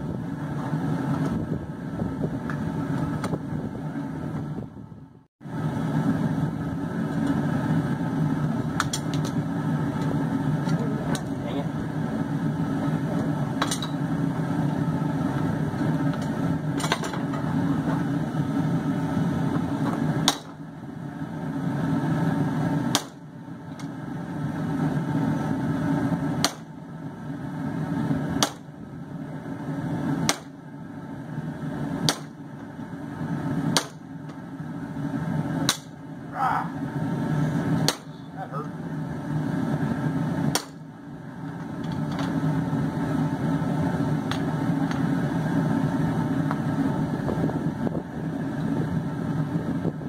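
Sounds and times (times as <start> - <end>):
hammer striking hot steel: 13.2 - 14.0, 19.5 - 20.6, 22.8 - 23.9, 26.4 - 26.8, 28.4 - 28.7, 30.2 - 30.6, 32.0 - 32.6, 33.7 - 34.4, 35.6 - 36.0, 37.8 - 38.4, 40.5 - 40.9.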